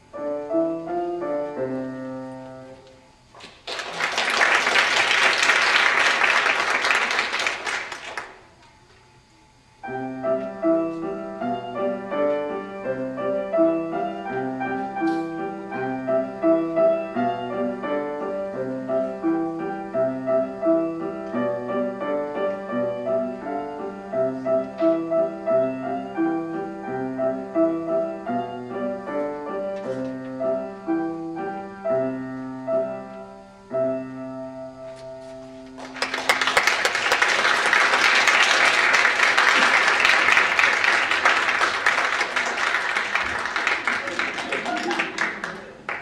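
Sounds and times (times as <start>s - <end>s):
solo grand piano: 0.0s - 6.3s, 9.8s - 44.2s
audience applause: 3.4s - 8.5s, 35.8s - 46.0s.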